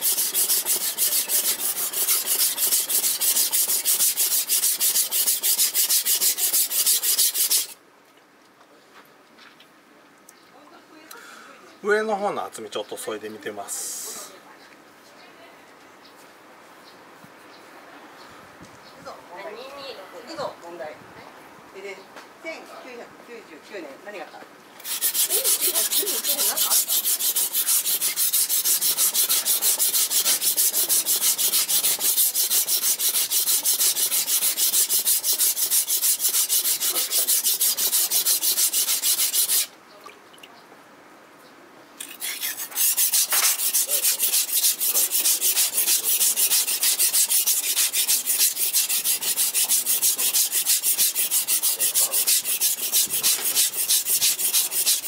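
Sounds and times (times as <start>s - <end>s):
knife scraping on whetstone: 0.0s - 7.8s, 24.8s - 39.7s, 42.0s - 55.0s.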